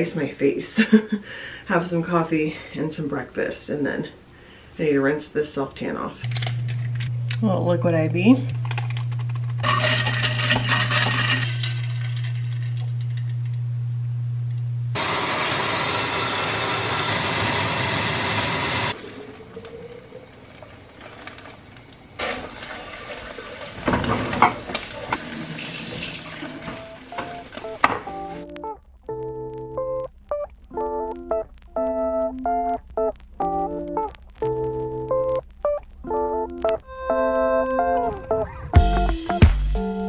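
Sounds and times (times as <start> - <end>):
blender running: 9.6 - 12.8, 15.0 - 19.0
clinks and knocks: 9.6 - 13.4.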